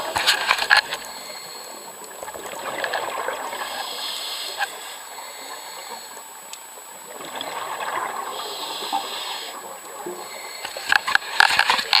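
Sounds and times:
exhaled bubbles rushing: 2.2 - 3.9, 7.0 - 10.2
regulator inhalation hiss: 3.7 - 6.2, 8.3 - 9.6.

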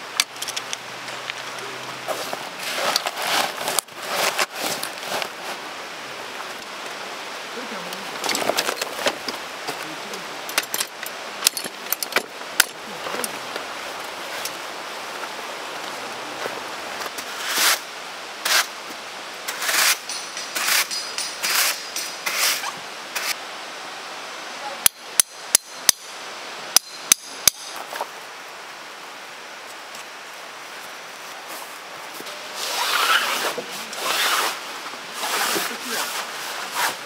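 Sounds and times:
broad rustling or scraping: 0.3 - 6.6, 7.6 - 18.8, 19.4 - 23.4, 30.0 - 37.0
sharp knocks with metallic ring: 20.0 - 22.2.

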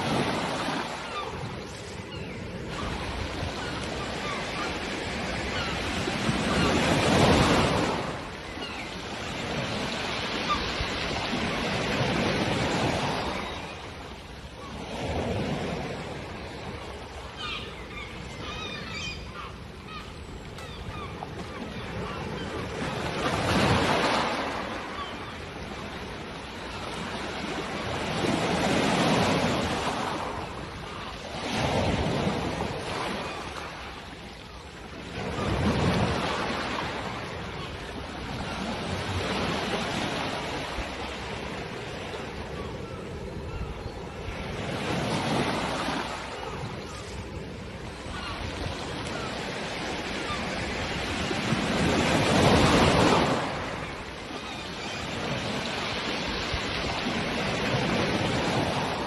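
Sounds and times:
gull calls: 17.3 - 22.6.

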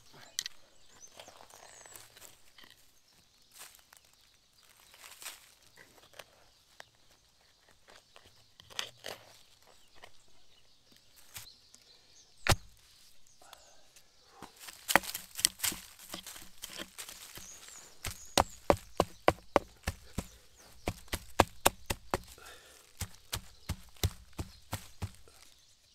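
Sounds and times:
footsteps in forest litter: 0.9 - 8.3, 10.9 - 11.8, 14.4 - 25.9
sharp woody crack: 12.4 - 12.8, 14.4 - 25.4
twigs cracking: 14.4 - 25.8
sharp knocks on wood: 14.9 - 22.4, 23.0 - 25.3.

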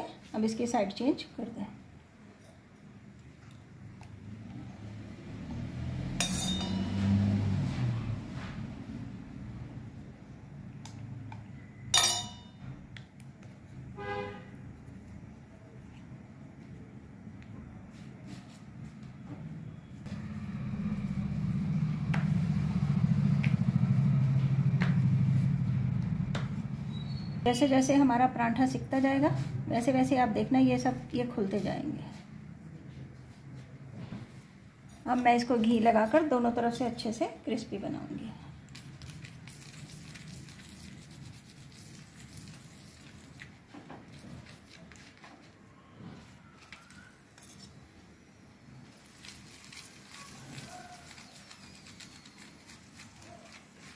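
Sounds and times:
spoon scraping an iron griddle: 6.2 - 7.0
low engine-like drone: 20.1 - 27.4.

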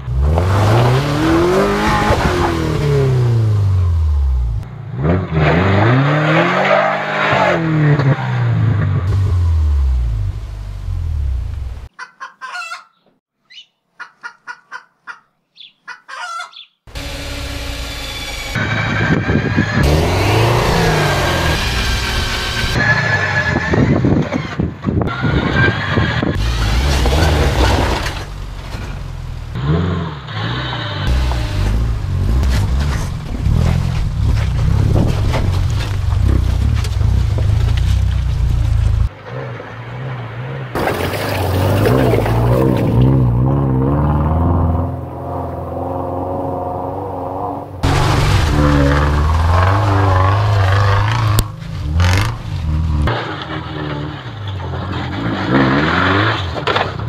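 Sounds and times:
car engine revving: 0.0 - 11.9, 16.9 - 24.0, 25.1 - 57.0
water or mud splashing: 47.8 - 50.1.

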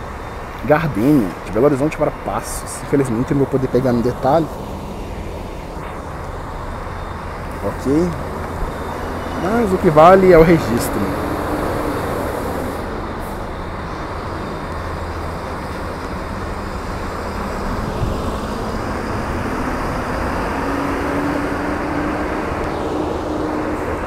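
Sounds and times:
coach engine running: 0.0 - 24.0
traffic rumble: 0.0 - 24.0.

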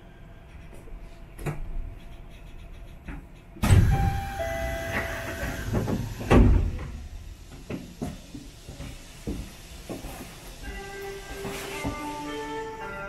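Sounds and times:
sliding doors operating: 3.6 - 13.0.

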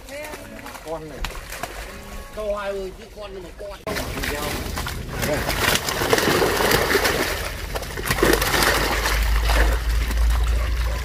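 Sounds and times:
fish splashing in water: 0.0 - 2.6, 3.8 - 11.0.

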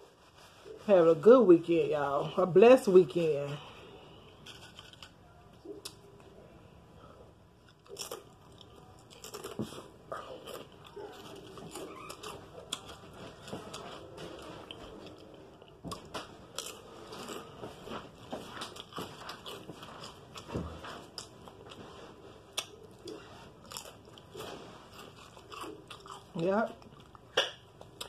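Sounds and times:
potato chips crunching: 4.4 - 5.2, 7.7 - 21.8, 22.5 - 28.0.

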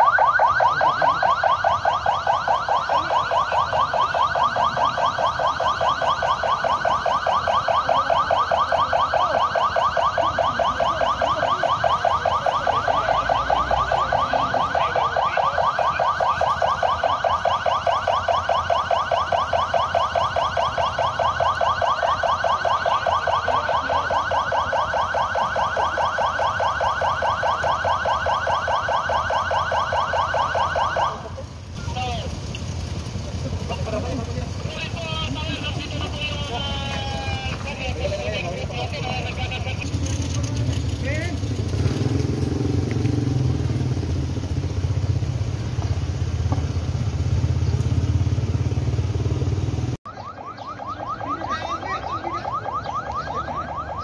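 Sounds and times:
electronic alarm warbling: 0.0 - 32.2, 34.6 - 42.0, 50.1 - 54.0.

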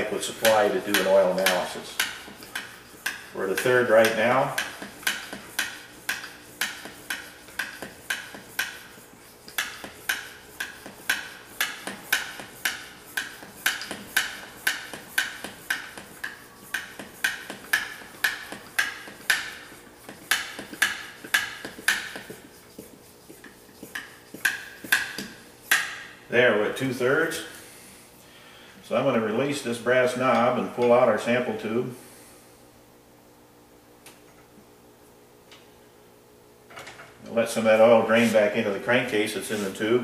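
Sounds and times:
hand vacuum pump strokes: 0.0 - 26.0.

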